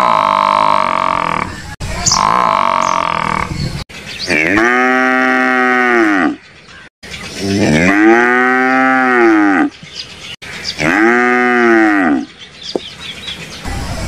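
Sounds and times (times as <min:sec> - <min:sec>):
buffalo mooing: 0:00.0 - 0:03.5, 0:04.3 - 0:06.4, 0:07.5 - 0:09.7, 0:10.8 - 0:12.3.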